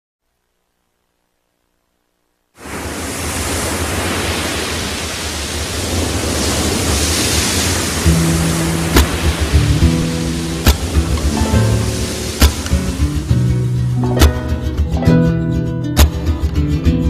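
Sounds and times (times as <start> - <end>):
sea surf rushing: 2.6 - 15.4
wind: 2.6 - 16.6
low held music notes: 8.0 - 17.0.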